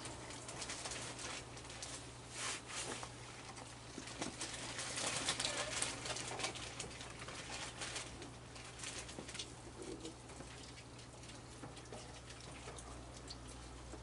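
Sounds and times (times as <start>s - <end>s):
raccoons chewing and smacking: 2.8s - 14.0s.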